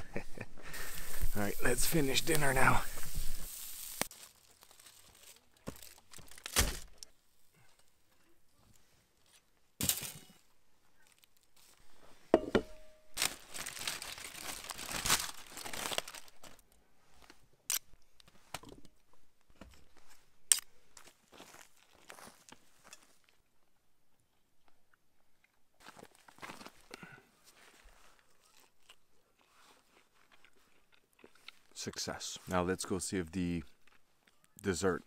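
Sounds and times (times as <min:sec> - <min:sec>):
aluminium foil crinkling and tearing: 0:00.8 - 0:07.1, 0:11.0 - 0:11.8, 0:13.1 - 0:16.6.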